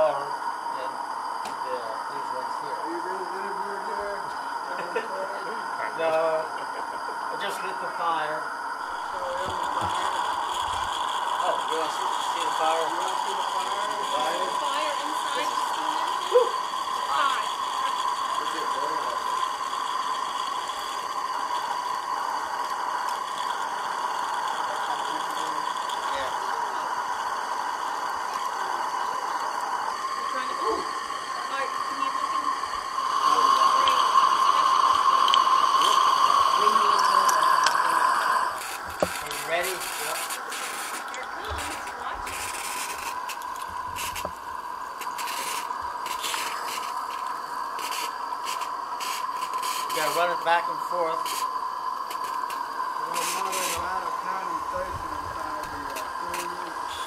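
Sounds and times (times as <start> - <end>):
propane burner hissing: 0.0 - 57.0
steady high tone: 0.0 - 57.0
steam locomotive puffs: 27.0 - 57.0.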